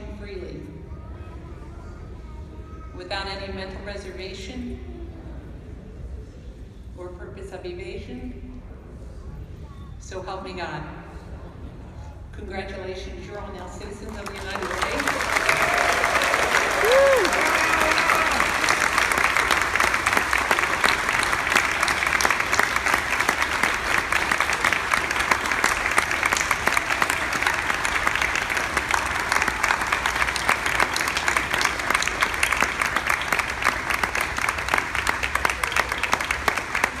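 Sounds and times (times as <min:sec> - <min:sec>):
audience applauding: 0:14.1 - 0:37.0.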